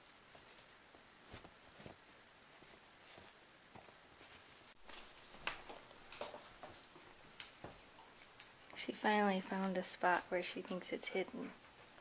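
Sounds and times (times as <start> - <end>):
dog rustling a blanket: 0.0 - 8.6.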